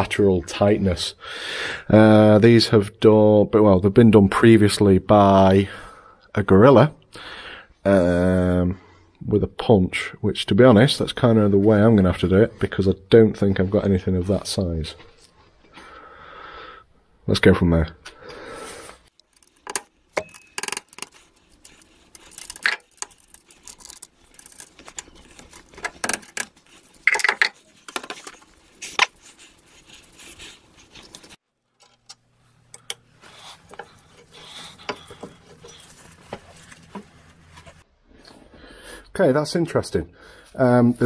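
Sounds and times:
metallic clinks and knocks: 0:19.4 - 0:21.2.

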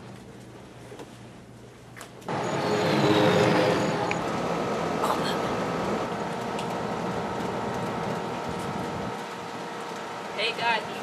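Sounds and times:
steady mechanical noise: 0:02.2 - 0:11.0
faint high whine: 0:02.3 - 0:06.1.

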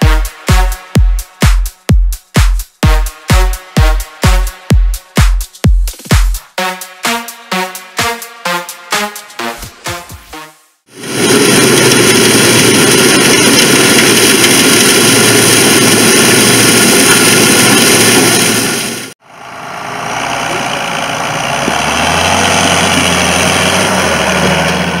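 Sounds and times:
combine harvester running: 0:10.9 - 0:25.0
low engine hum: 0:11.1 - 0:25.0.

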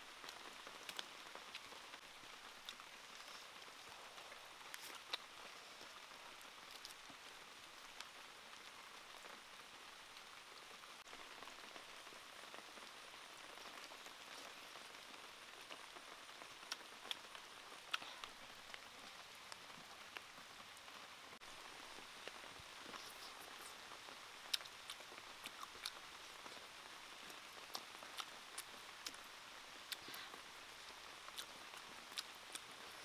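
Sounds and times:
light rain patter: 0:00.0 - 0:33.0.

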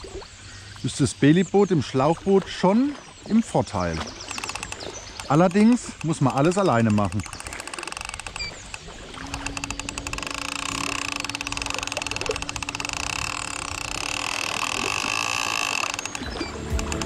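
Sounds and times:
electric motor humming and whining: 0:04.3 - 0:17.0.

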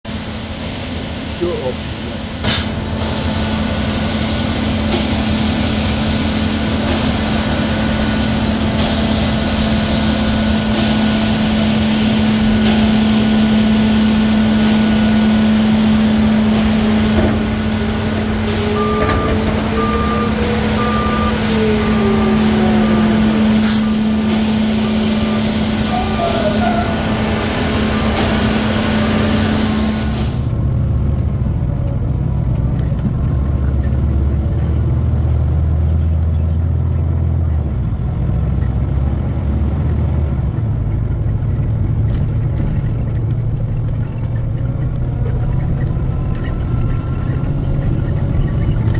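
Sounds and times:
diesel truck engines droning: 0:00.0 - 0:48.9
reversing beeper: 0:11.3 - 0:30.5, 0:44.0 - 0:48.9.

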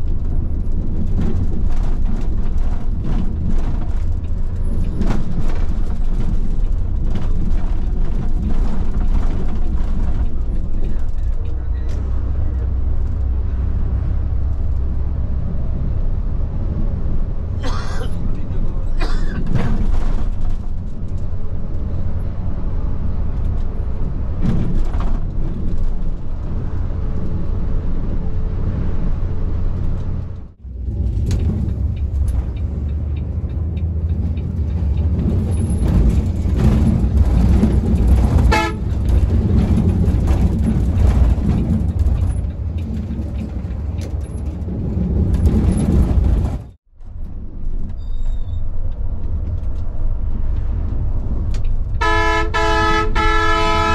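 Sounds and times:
vehicle engines and road rumble: 0:00.0 - 0:53.9
car horns tooting: 0:38.4 - 0:39.0, 0:52.0 - 0:53.9.

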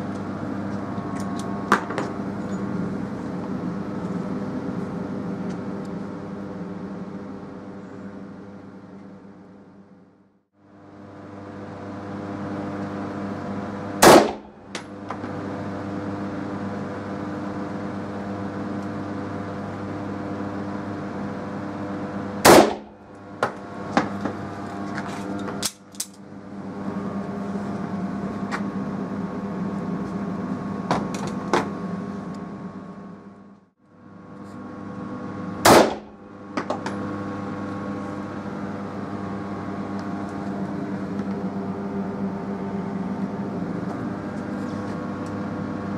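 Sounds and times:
steady low hum: 0:00.0 - 0:45.9
pistol shots: 0:14.0 - 0:14.5, 0:22.4 - 0:22.9, 0:35.7 - 0:36.1.

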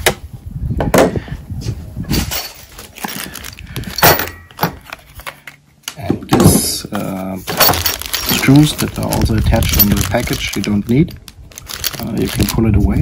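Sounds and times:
plastic packaging rustling: 0:02.2 - 0:04.0, 0:06.9 - 0:13.0.

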